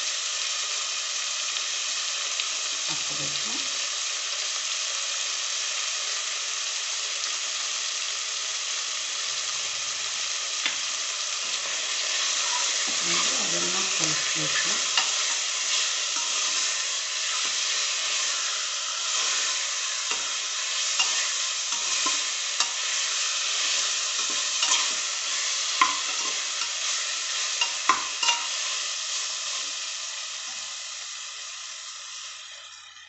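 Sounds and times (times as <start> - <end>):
food sizzling in oil: 0.0 - 33.0
steel spoon scraping pot: 12.4 - 13.4, 20.9 - 22.9, 24.2 - 25.0, 27.6 - 28.6.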